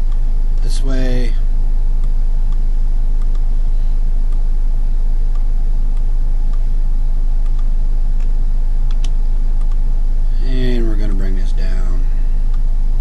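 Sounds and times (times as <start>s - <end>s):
low electrical hum: 0.0s - 13.0s
faint clicks: 3.2s - 3.5s, 7.4s - 9.8s.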